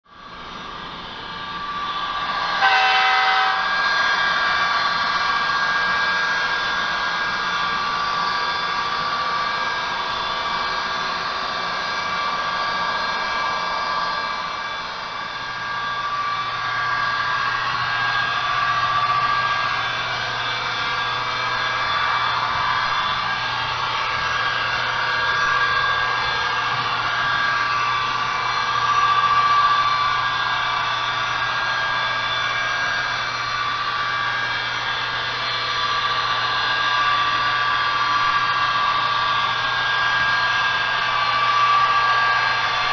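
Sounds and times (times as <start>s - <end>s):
diesel engine running sound: 0.1s - 42.9s
model train horn blast: 2.5s - 3.9s.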